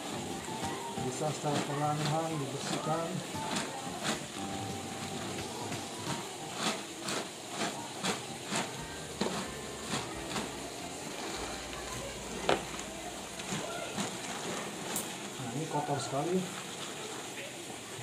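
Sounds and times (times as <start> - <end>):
sponge scrubbing wet fabric: 5.1 - 14.9.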